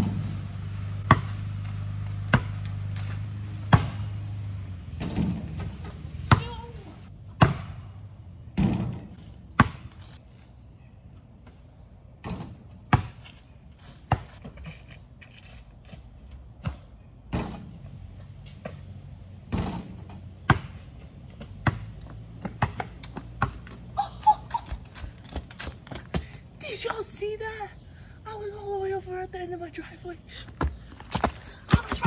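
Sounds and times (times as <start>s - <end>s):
ball hitting backboard or rim: 1.0s - 2.8s, 3.7s - 4.2s, 5.0s - 6.7s, 7.4s - 7.9s, 8.6s - 9.8s, 19.5s - 20.8s
basketball bouncing on concrete: 1.0s - 4.1s, 5.0s - 7.9s, 8.6s - 10.0s, 12.2s - 13.4s, 14.1s - 14.7s, 19.5s - 23.9s, 24.7s - 26.4s, 30.5s - 32.0s.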